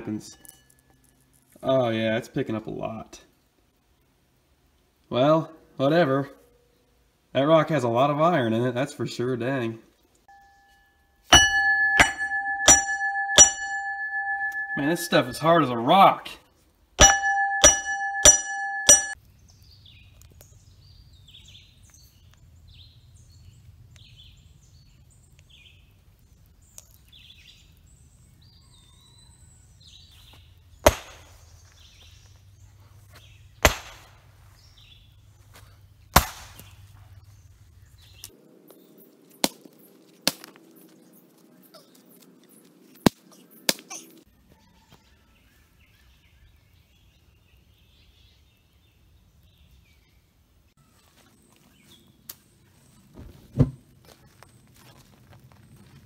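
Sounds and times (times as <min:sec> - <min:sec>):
hammer striking stone: 0:11.3 - 0:15.3, 0:17.0 - 0:19.2.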